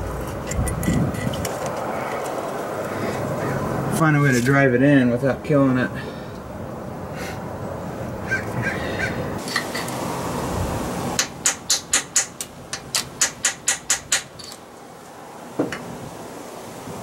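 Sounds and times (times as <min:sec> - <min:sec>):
hammer tapping metal: 0:11.2 - 0:14.6.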